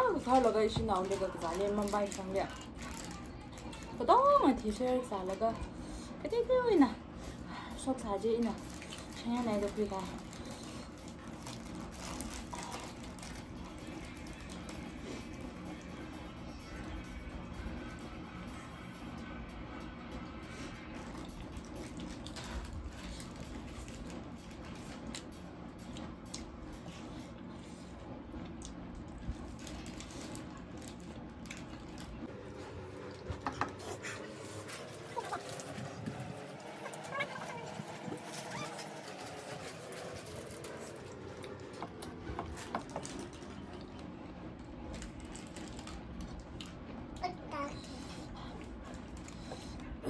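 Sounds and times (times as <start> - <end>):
low room hum: 0.0 - 50.0
chewing: 10.2 - 13.4.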